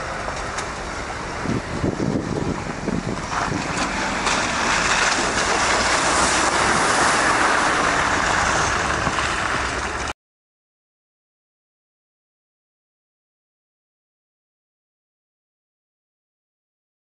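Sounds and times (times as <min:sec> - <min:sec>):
vehicle engine: 0:00.0 - 0:10.2
tyres splashing through water: 0:02.4 - 0:10.1.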